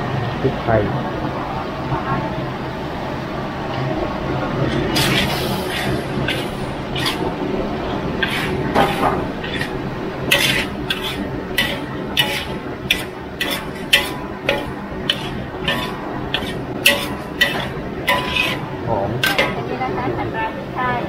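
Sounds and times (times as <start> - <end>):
steady low hum: 0.0 - 21.0
metal ladle scraping a wok: 4.7 - 7.4, 8.2 - 19.7.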